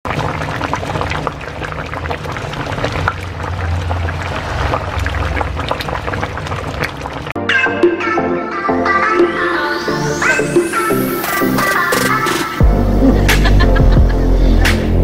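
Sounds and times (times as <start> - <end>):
food crackling and bubbling in pan: 0.0 - 7.4.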